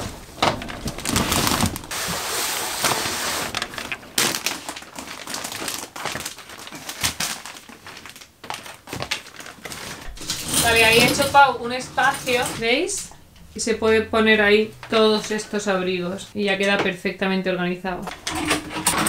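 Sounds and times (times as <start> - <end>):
plastic bags rustling and crinkling: 0.0 - 13.1.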